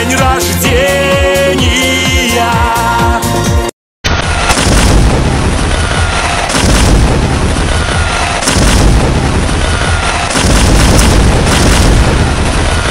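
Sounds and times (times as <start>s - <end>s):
fireworks booming: 4.1s - 12.9s
fireworks crackling: 4.1s - 12.9s.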